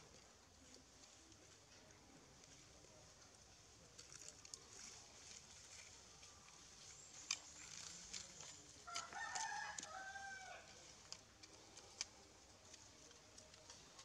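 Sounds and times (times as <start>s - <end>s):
small clicks and ticks: 3.9s - 10.2s, 10.8s - 14.0s
rooster crowing: 8.8s - 10.8s.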